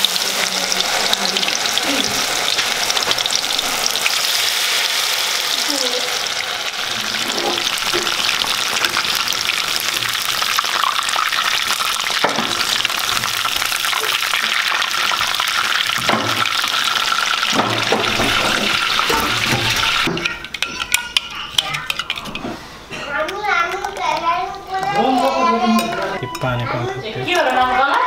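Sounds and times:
food deep-frying in oil: 0.0 - 22.3
metal spoon knocking and scraping: 17.5 - 22.6.

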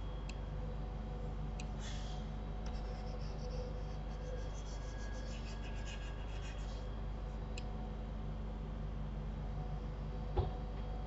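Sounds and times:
low electrical hum: 0.0 - 11.0
mouse rubbing on desk: 2.7 - 6.9.

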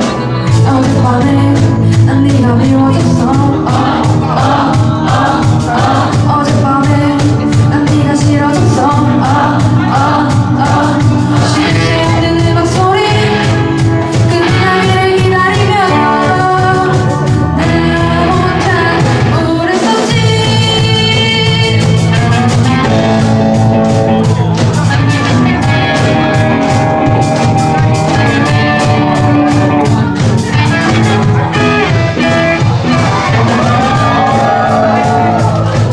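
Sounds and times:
female lead vocal: 0.0 - 22.9
live rock band playing: 0.0 - 35.9.

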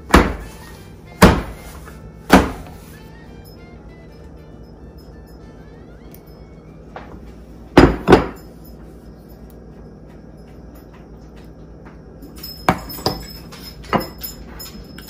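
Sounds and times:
ceramic bowl knocking on countertop: 7.8 - 8.4.

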